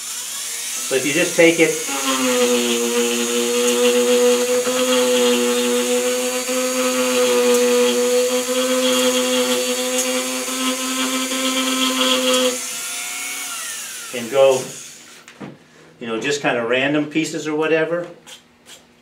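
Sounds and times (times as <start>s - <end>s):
rotary tool cutting wood: 0.0s - 15.2s.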